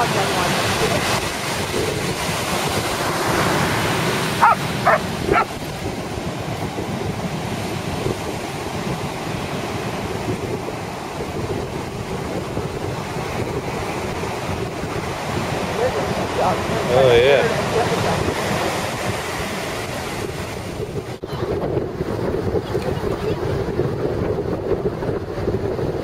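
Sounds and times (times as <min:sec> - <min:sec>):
surf breaking on shore: 0:00.0 - 0:26.0
wind on microphone: 0:00.0 - 0:26.0
dog barking: 0:04.4 - 0:05.6.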